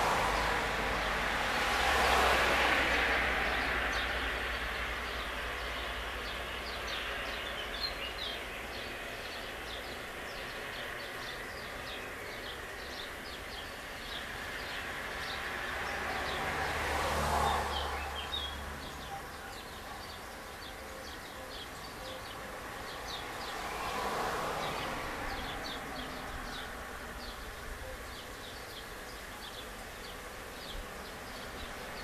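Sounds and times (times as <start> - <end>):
vehicle passing: 0.0 - 21.2, 22.3 - 27.7
small birds chirping: 2.0 - 32.0.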